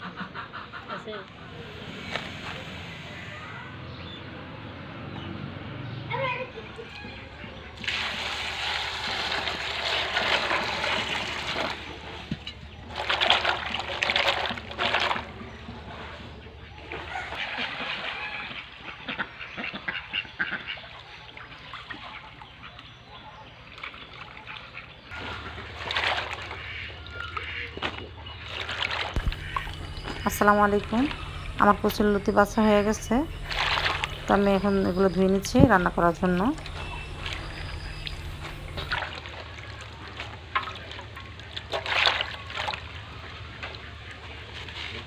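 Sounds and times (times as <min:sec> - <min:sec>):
ducks quacking: 0:00.0 - 0:03.7, 0:16.3 - 0:23.5, 0:24.4 - 0:45.0
water splashing in metal bowl: 0:07.7 - 0:16.0, 0:23.7 - 0:45.0.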